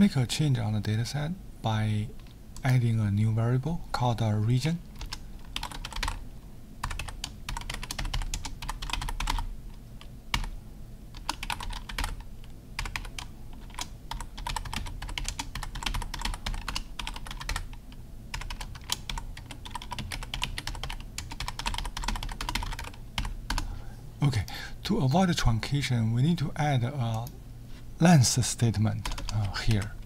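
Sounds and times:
keyboard typing: 5.0 - 6.2, 6.8 - 9.5, 10.3 - 10.5, 11.1 - 23.7, 29.0 - 30.0.

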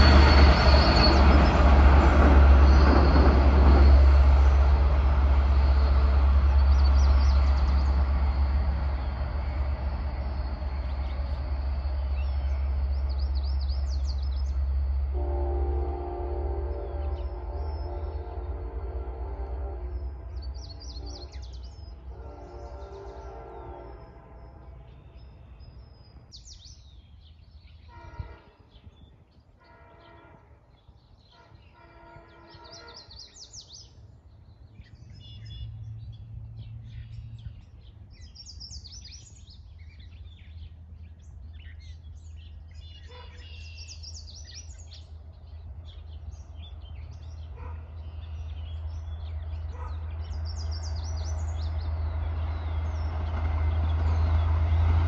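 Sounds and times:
birds chirping: 0.0 - 55.0
train rumble: 0.0 - 55.0
train horn: 14.9 - 25.5, 27.8 - 33.6.

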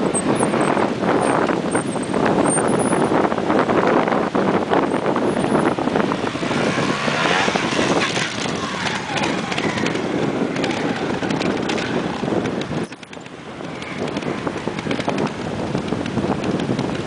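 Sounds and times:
motorcycle engine revving: 4.7 - 17.0.

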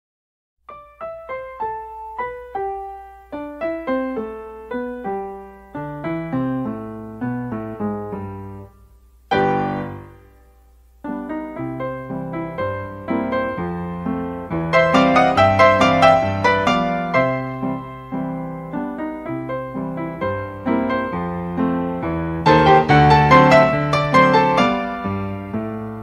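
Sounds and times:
piano music: 0.7 - 26.0.

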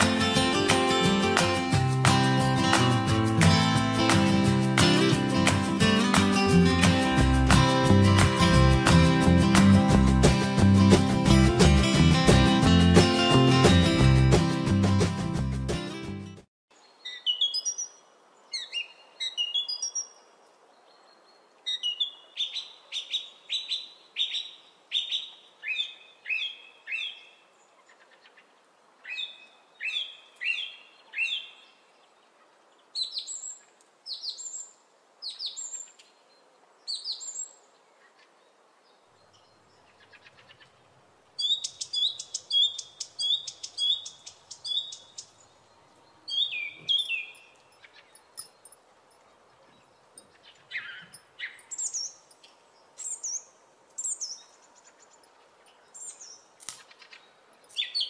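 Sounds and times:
birds chirping: 29.0 - 58.0.

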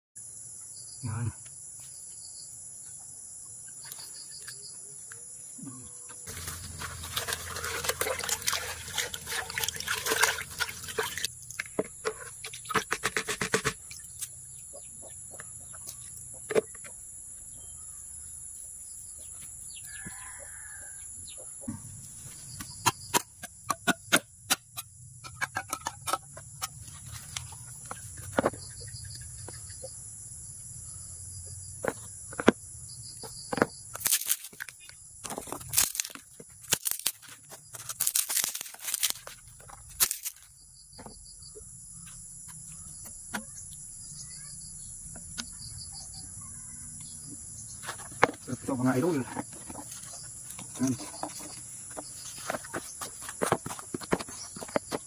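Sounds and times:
crickets droning: 0.2 - 55.0
rooster crowing: 19.8 - 21.2.

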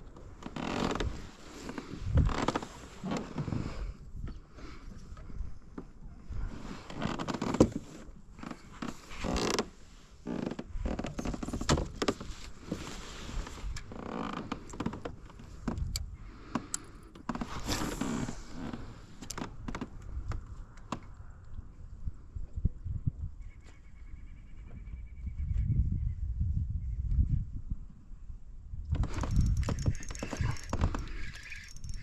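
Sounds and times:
fishing tackle knocks and clicks: 29.0 - 32.0.

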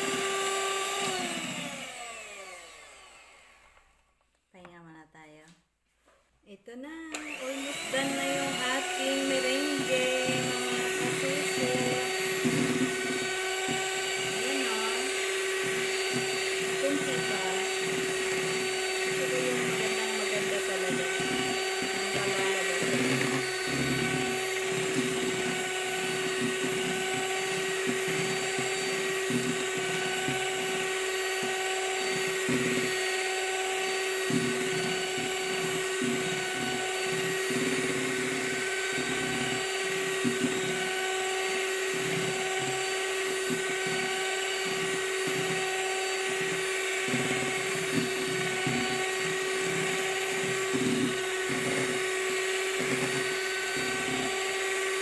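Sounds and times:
electric hand mixer whine: 0.0 - 4.2, 7.1 - 55.0.

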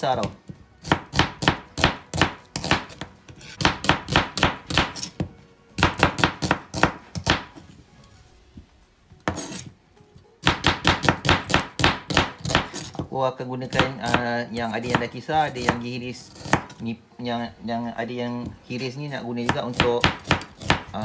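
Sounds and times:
knife chopping on cutting board: 0.2 - 7.6, 9.2 - 9.7, 10.4 - 16.8, 19.4 - 21.0.

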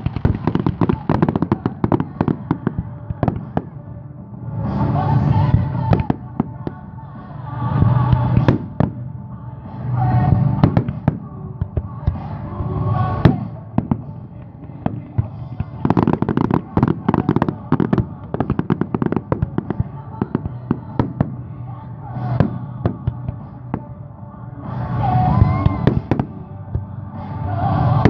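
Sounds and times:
fireworks bursting: 0.0 - 3.8, 7.7 - 9.0, 10.3 - 21.4, 25.4 - 26.5
fireworks crackling barrage: 0.0 - 3.9, 4.5 - 9.1, 10.1 - 21.6, 24.7 - 26.6
music: 0.0 - 28.0.

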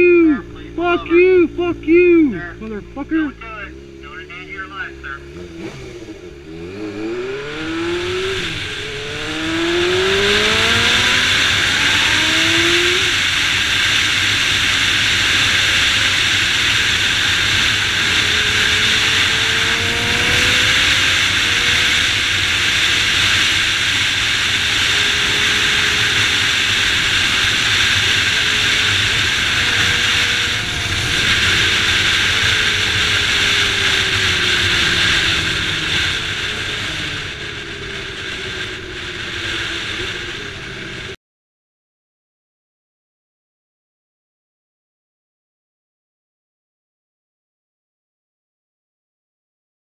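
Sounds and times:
motorcycle engine accelerating: 0.0 - 41.2
wind rushing over microphone: 5.4 - 41.2.

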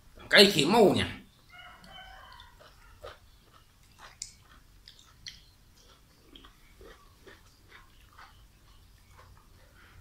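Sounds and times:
man chewing with wet mouth smacks: 1.6 - 10.0.

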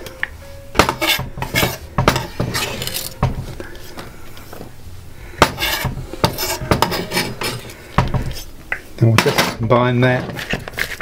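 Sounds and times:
utensils scraping a bowl: 0.8 - 3.2, 5.4 - 8.5.

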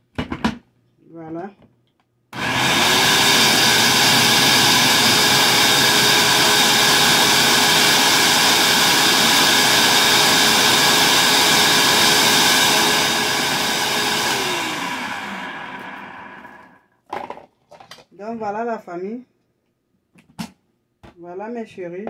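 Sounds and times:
blender running: 2.4 - 16.8.

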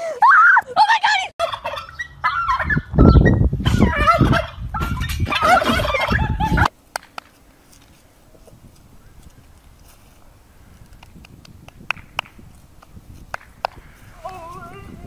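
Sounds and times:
turkey gobbling: 1.4 - 6.7.

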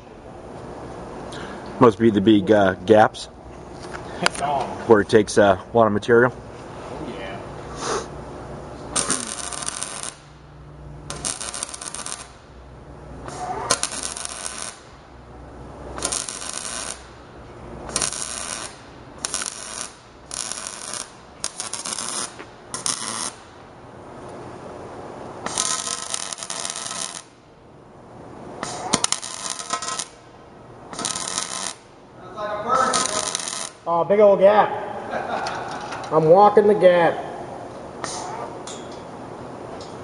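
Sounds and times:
welder arc crackling and sizzling: 7.0 - 34.4.

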